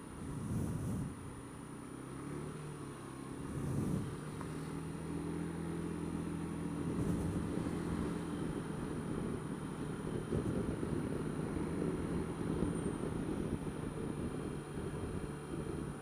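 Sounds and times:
wind buffeting microphone: 0.2s - 1.4s, 6.8s - 16.0s
scooter engine running: 0.2s - 16.0s.

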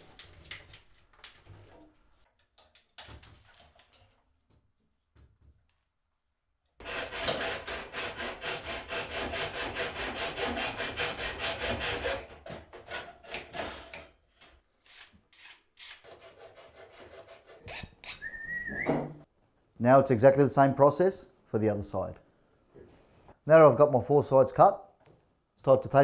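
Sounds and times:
hacksaw cutting metal: 6.8s - 14.0s, 14.9s - 18.3s.

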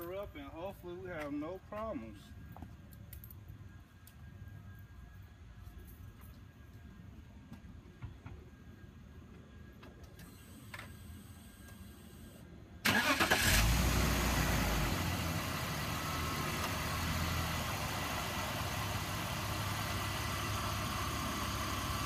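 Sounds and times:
car engine cranking and starting: 12.8s - 22.0s
car engine idling: 12.9s - 22.0s.

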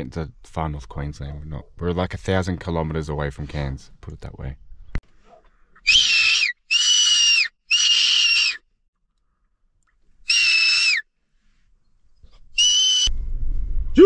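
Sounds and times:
high-pitched fox whistle calls: 5.8s - 8.6s, 10.2s - 11.1s, 12.5s - 13.1s.

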